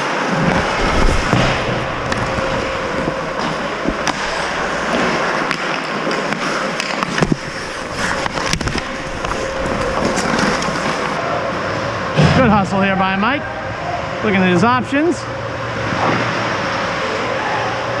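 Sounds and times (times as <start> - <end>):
skates scraping on ice: 0.2 - 11.2
hockey sticks and puck clacking: 0.3 - 11.2.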